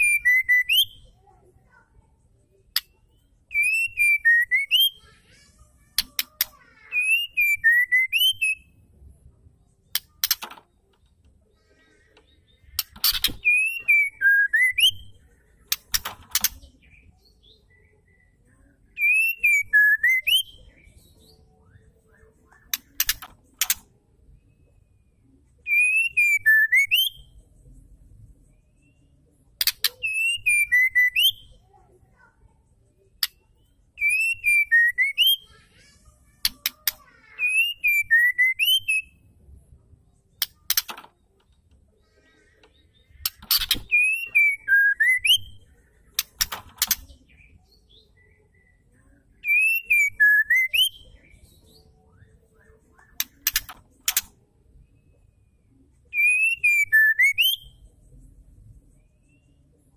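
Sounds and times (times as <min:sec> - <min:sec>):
bird calling clicks and whistle: 0:05.9 - 0:08.6, 0:09.9 - 0:11.1, 0:12.1 - 0:16.8, 0:22.5 - 0:23.9, 0:36.4 - 0:39.0, 0:40.4 - 0:41.8, 0:42.6 - 0:47.5, 0:52.6 - 0:54.4.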